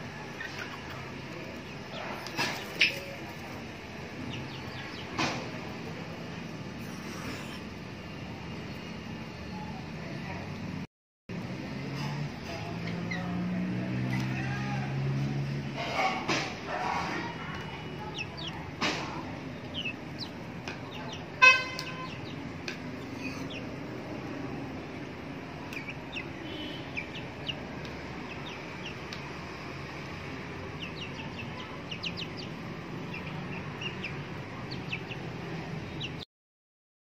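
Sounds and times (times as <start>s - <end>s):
chickens clucking: 0.0s - 5.9s, 15.7s - 29.3s, 30.1s - 36.2s
chicken chirps: 0.2s - 3.2s, 17.6s - 22.4s, 23.0s - 23.7s, 25.7s - 29.2s, 30.8s - 35.3s
loud honk-like tone: 21.4s - 22.2s.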